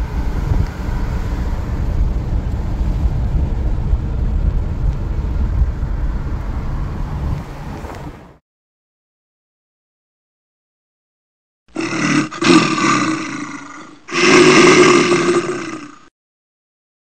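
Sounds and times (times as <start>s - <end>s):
car road and wind noise: 0.0s - 8.4s.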